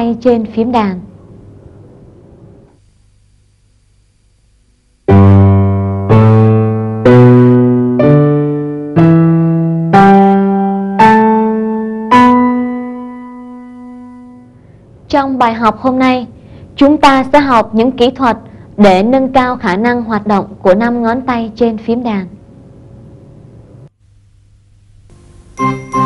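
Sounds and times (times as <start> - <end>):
electronic piano notes: 5.1 - 14.6, 25.6 - 26.0.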